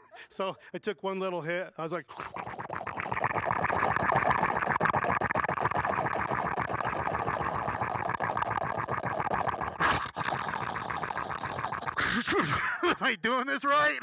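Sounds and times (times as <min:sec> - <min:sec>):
man making rattling vocal noise: 0:02.1 - 0:12.6.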